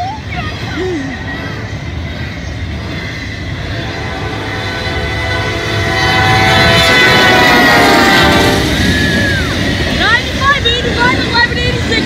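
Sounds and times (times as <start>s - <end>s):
train rumble: 0.0s - 12.0s
locomotive air horn: 3.7s - 9.5s.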